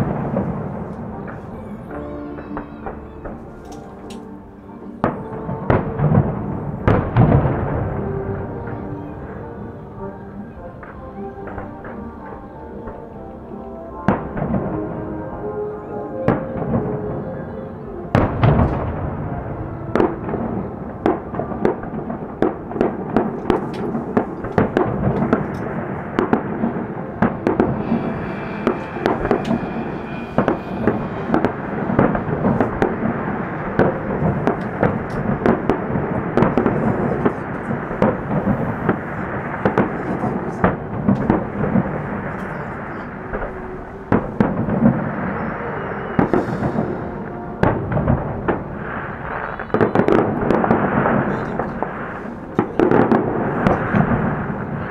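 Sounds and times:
firework rumble and crackle: 0.0s - 4.3s, 5.0s - 54.9s
firework shells bursting: 19.9s - 54.9s.

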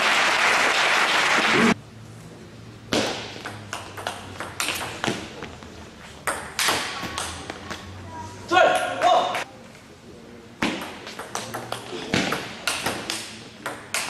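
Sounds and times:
crowd applause: 0.0s - 1.8s.

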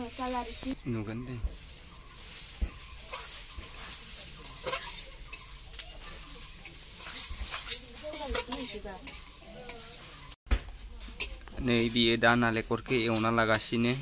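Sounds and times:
metal spatula scraping wok: 0.0s - 14.0s
steady sizzle: 0.0s - 14.0s
spatula clinking against pan: 2.7s - 10.1s.

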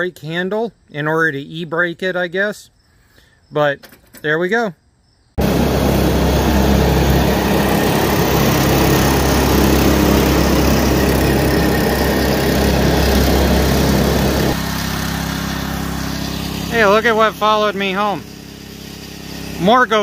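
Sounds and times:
small gasoline engine running: 5.4s - 20.0s.

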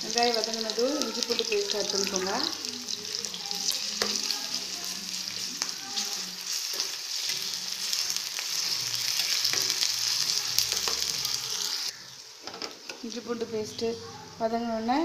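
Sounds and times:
onions sizzling in hot oil: 0.0s - 13.9s.

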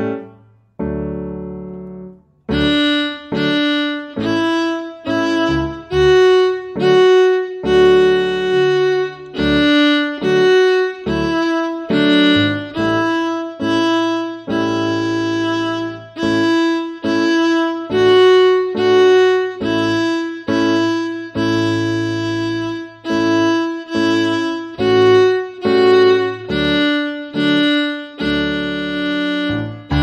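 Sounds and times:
piano chord: 0.0s - 21.4s, 28.4s - 30.0s
fiddle melody: 0.0s - 30.0s
low accompaniment: 0.0s - 30.0s.

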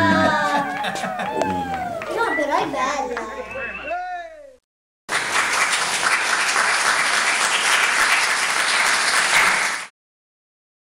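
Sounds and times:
group of people clapping: 0.4s - 2.2s, 5.1s - 9.9s.

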